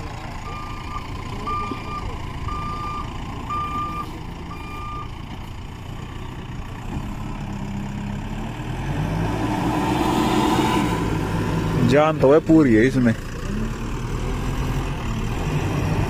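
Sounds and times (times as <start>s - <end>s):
diesel engine revving: 0.0s - 16.0s
reversing alarm beeping: 0.4s - 5.1s.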